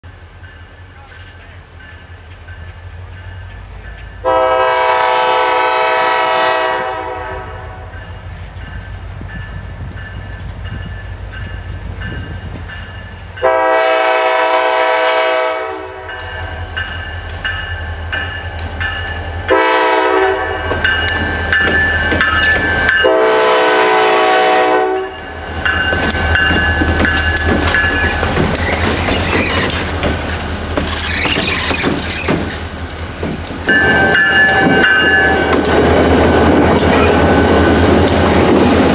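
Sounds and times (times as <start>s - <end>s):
locomotive air horn: 4.2s - 7.9s, 13.4s - 16.2s, 19.5s - 20.7s, 23.0s - 25.2s
wheels clattering over rail joints: 20.7s - 23.0s, 25.7s - 37.2s.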